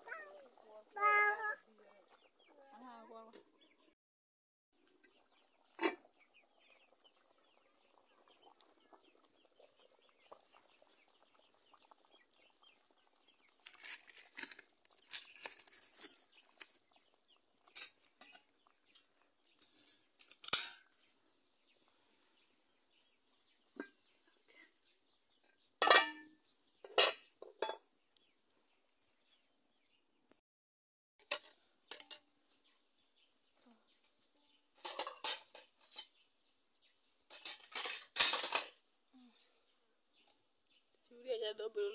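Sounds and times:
pots and dishes clattering: 5.0s - 6.2s, 17.7s - 18.5s, 19.6s - 21.0s, 23.7s - 24.0s, 25.4s - 27.9s, 31.2s - 32.2s, 34.8s - 36.1s, 37.3s - 38.8s.

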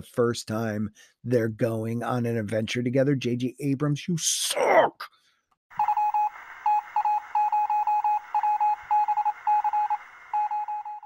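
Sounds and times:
morse code style beeping: 5.8s - 11.0s.

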